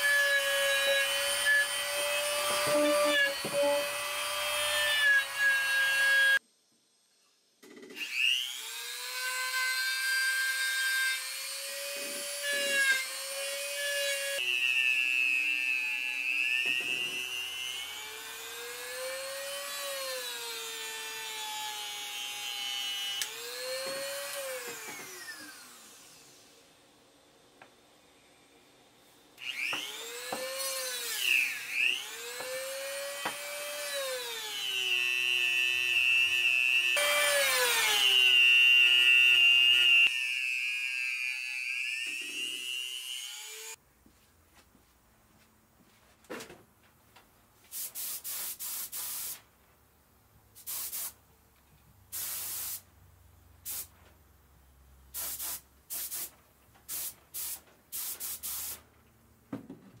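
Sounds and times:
spray gun hissing: 0:47.7 - 0:49.4, 0:50.6 - 0:51.2, 0:52.1 - 0:52.8, 0:53.7 - 0:53.9, 0:55.2 - 0:56.3, 0:56.9 - 0:58.8.

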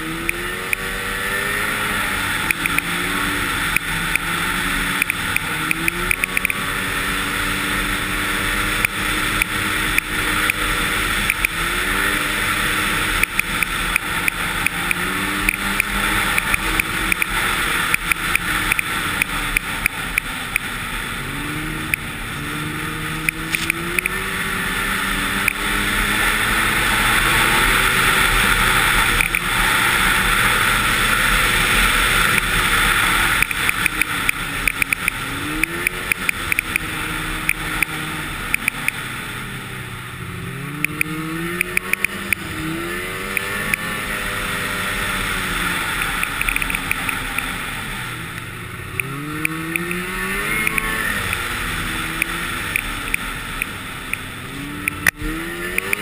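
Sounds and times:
snowmobile engine revving: 0:00.0 - 0:56.0
wind and track noise: 0:00.0 - 0:56.0
sharp clicks: 0:00.2 - 0:00.9, 0:02.4 - 0:03.0, 0:03.7 - 0:04.4, 0:05.0 - 0:06.6, 0:08.8 - 0:11.6, 0:13.1 - 0:20.7, 0:23.2 - 0:24.2, 0:29.0 - 0:29.5, 0:33.4 - 0:39.0, 0:40.8 - 0:42.5, 0:43.3 - 0:43.9, 0:46.0 - 0:47.5, 0:48.3 - 0:51.5, 0:52.1 - 0:56.0.

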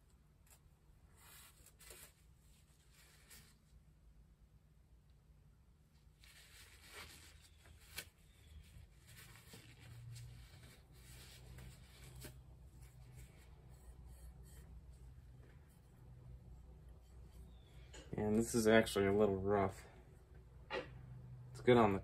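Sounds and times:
faint scrubbing and rubbing: 0:06.2 - 0:17.8.

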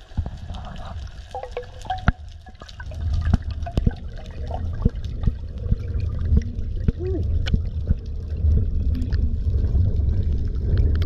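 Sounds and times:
underwater bubbling rumble: 0:00.0 - 0:11.0
sharp underwater clicks: 0:01.3 - 0:08.2.

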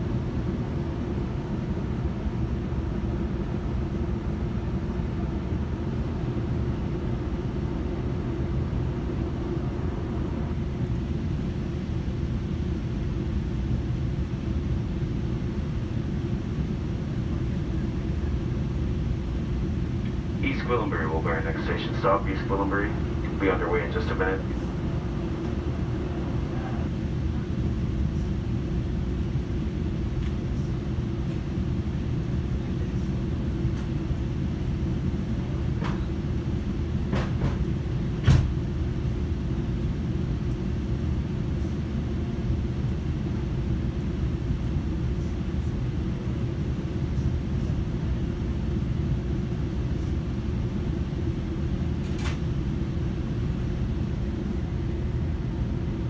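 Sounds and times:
train coach rumble: 0:17.4 - 0:28.5.

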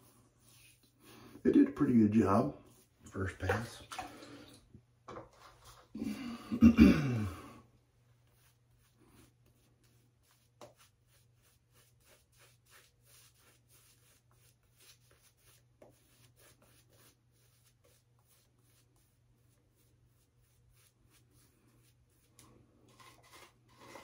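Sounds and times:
shaving brush swishing: 0:08.3 - 0:22.4.

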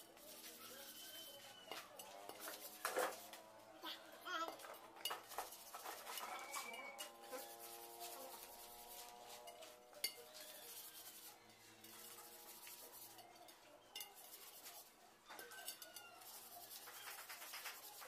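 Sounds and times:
sandpaper rubbing on metal wheel: 0:00.0 - 0:03.4, 0:05.2 - 0:13.3, 0:14.2 - 0:14.9, 0:16.2 - 0:18.0.

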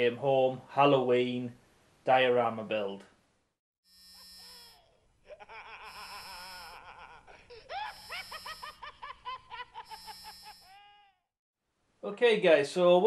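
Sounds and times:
cackling villain laugh: 0:04.4 - 0:11.2.

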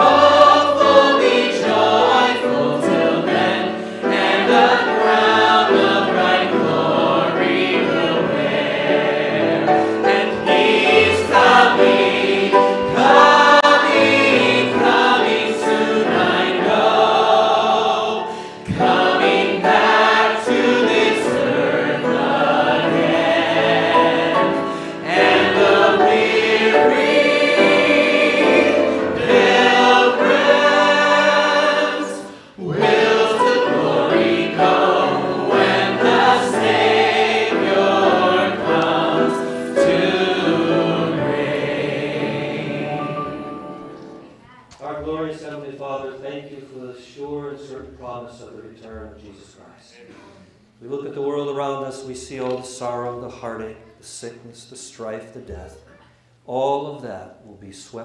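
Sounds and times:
small group singing a hymn: 0:00.0 - 0:44.4.

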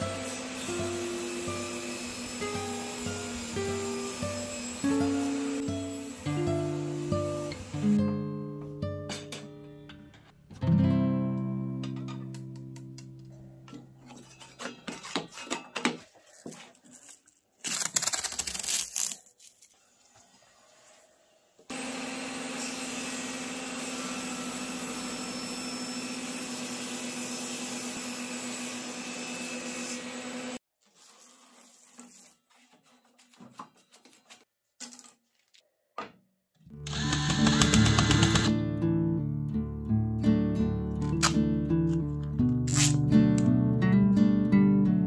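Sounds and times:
table saw humming: 0:00.0 - 0:07.8, 0:21.7 - 0:30.6
wooden stick scraping metal: 0:13.7 - 0:16.2.

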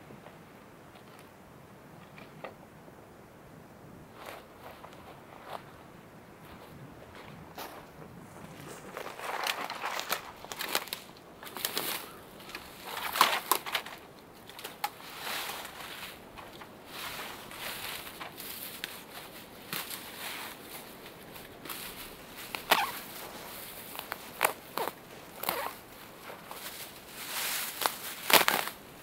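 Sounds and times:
dry grass rustling and crunching: 0:04.1 - 0:29.0
stems snapping: 0:09.2 - 0:15.0, 0:21.4 - 0:26.9, 0:27.6 - 0:28.8.

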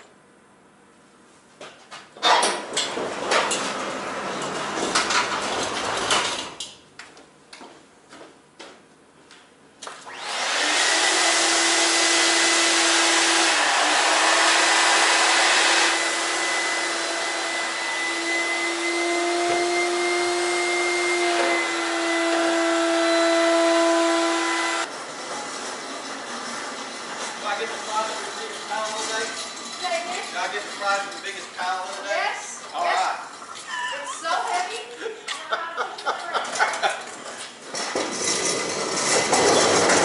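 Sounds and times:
machine hissing and humming: 0:10.1 - 0:24.9
machine whine: 0:10.1 - 0:27.3.

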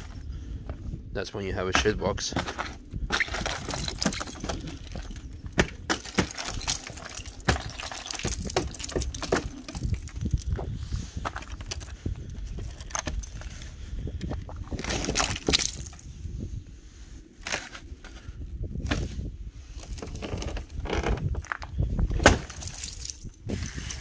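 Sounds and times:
ice cracking and crunching: 0:01.6 - 0:13.6, 0:14.2 - 0:16.1, 0:17.4 - 0:17.9, 0:19.8 - 0:24.0.

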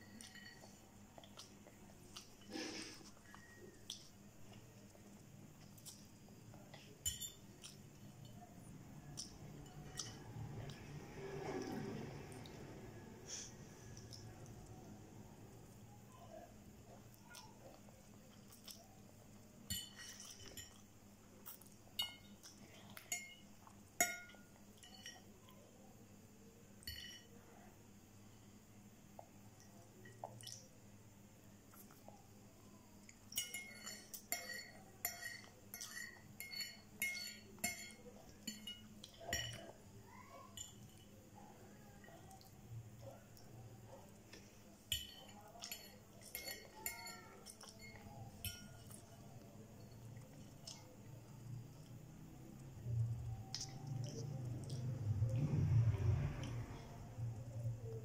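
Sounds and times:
fork clinking on a plate: 0:26.8 - 0:27.3, 0:33.3 - 0:39.7
fork clinking on ceramic plate: 0:26.8 - 0:27.3.

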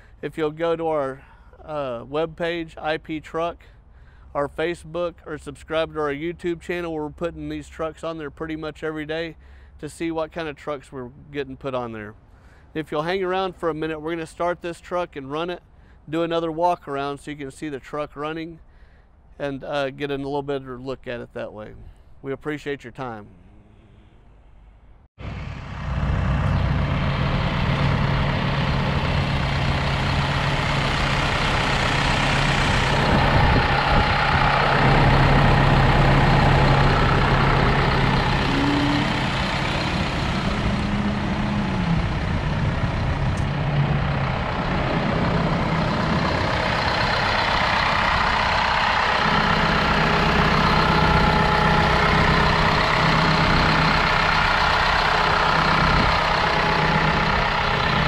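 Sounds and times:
diesel engine idling: 0:00.0 - 0:06.4, 0:25.2 - 0:58.0.

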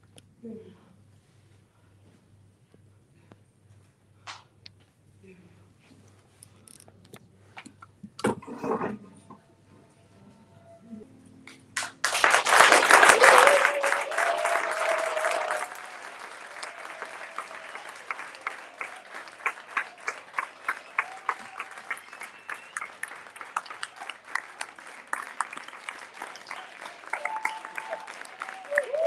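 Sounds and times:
audience clapping: 0:11.5 - 0:29.0
audience cheering: 0:12.1 - 0:29.0.

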